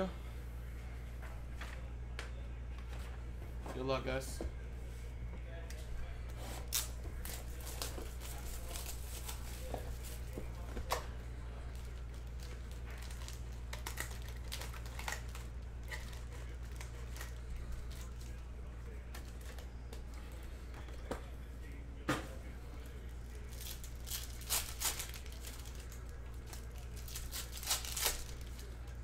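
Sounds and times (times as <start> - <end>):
low steady hum: 0.0 - 29.0
foil packs crinkling: 6.6 - 10.6, 11.7 - 18.4, 22.7 - 29.0.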